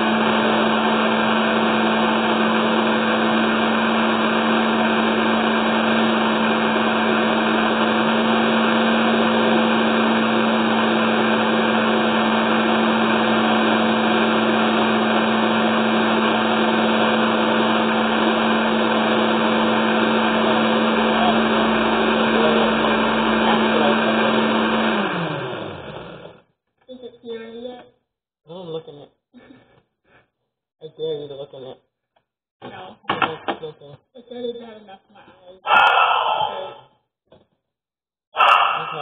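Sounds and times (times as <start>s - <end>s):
blender running: 0.0s - 26.5s.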